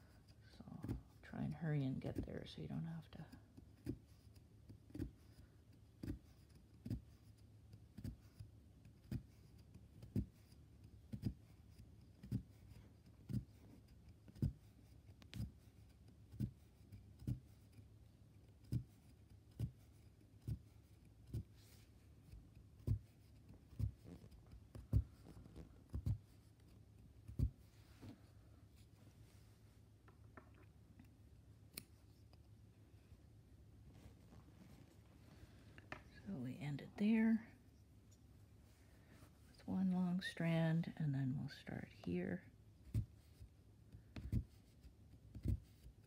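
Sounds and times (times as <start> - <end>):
punch needle thudding through cloth: 22.8 - 26.5, 27.2 - 27.7, 42.8 - 43.5, 44.1 - 45.9.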